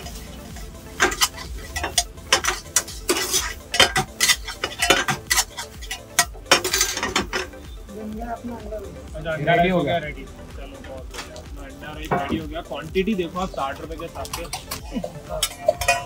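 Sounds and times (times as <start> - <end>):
metal spatula clanking against wok: 0.5 - 7.6, 14.2 - 16.0.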